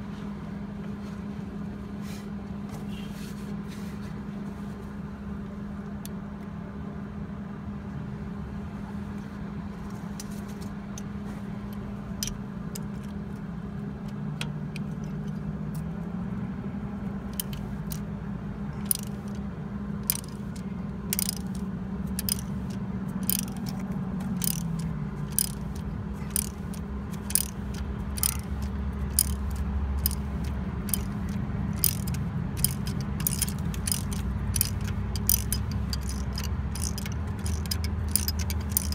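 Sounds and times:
steady low hum: 0:00.0 - 0:38.9
ratchet wrench clicking: 0:17.3 - 0:18.1, 0:18.7 - 0:19.4, 0:20.0 - 0:38.9.

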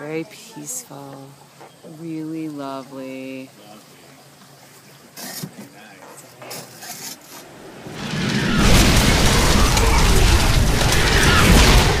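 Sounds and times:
heavy rain downpour: 0:07.5 - 0:12.0.

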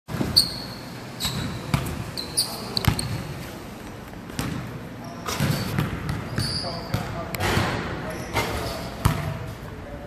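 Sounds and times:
basketball bouncing on gym floor: 0:00.1 - 0:00.4, 0:01.2 - 0:02.0, 0:04.3 - 0:09.5
sneaker squeaks: 0:00.1 - 0:03.5, 0:04.3 - 0:09.5.

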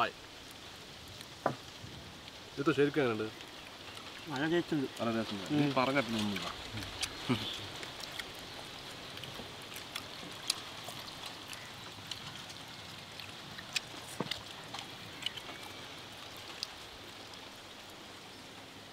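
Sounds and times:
steady background hiss: 0:00.0 - 0:18.9
meat tearing with wet clicks: 0:05.0 - 0:17.4.

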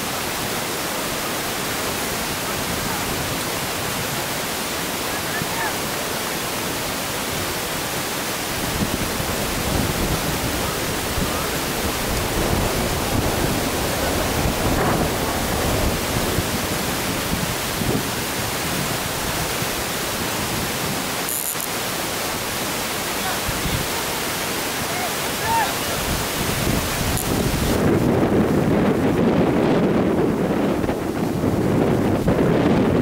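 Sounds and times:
wind buffeting microphone: 0:06.4 - 0:21.3, 0:22.2 - 0:33.0.

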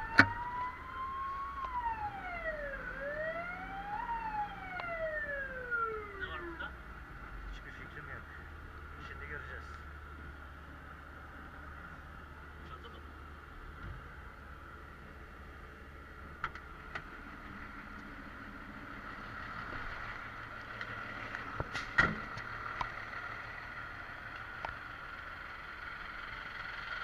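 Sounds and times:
high-pitched siren tone: 0:00.0 - 0:06.8
vehicle noise: 0:00.0 - 0:27.0.

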